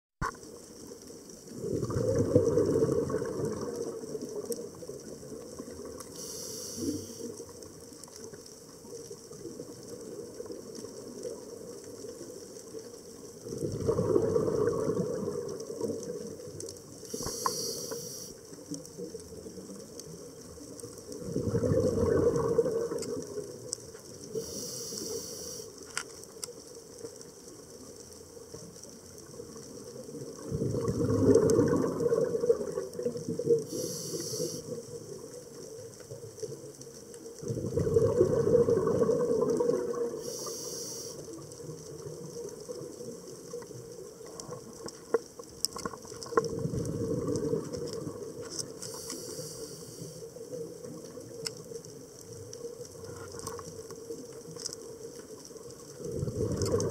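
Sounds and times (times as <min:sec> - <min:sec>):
rush of exhaled bubbles: 0:01.5 - 0:07.4, 0:13.4 - 0:18.3, 0:21.1 - 0:25.6, 0:30.1 - 0:35.4, 0:37.4 - 0:43.1, 0:45.8 - 0:51.3, 0:55.8 - 0:56.9
regulator air hiss on inhale: 0:06.1 - 0:07.5, 0:17.0 - 0:18.4, 0:24.3 - 0:26.0, 0:33.6 - 0:34.8, 0:40.1 - 0:41.4, 0:48.7 - 0:50.4.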